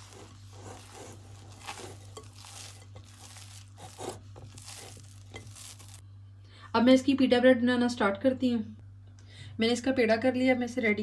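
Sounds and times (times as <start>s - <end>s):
dough squishing and tearing: 0.0s - 6.0s.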